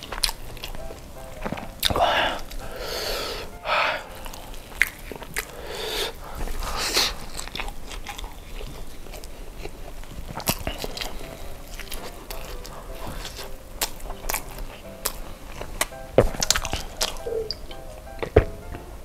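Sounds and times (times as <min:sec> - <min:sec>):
close chewing with wet mouth sounds: 0:00.0 - 0:18.8
sharp mouth clicks: 0:04.2 - 0:06.1.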